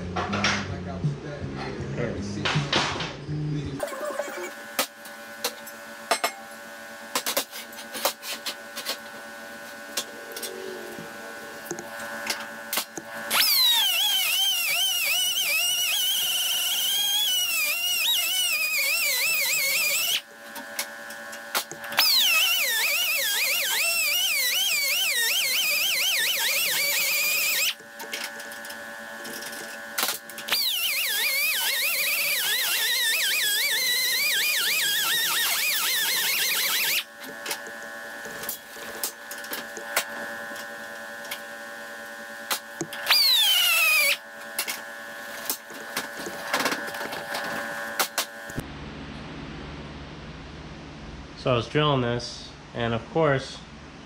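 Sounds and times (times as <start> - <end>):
pneumatic drill whining: 12.7 - 20.3, 21.6 - 28.6, 29.3 - 37.7, 42.8 - 44.2.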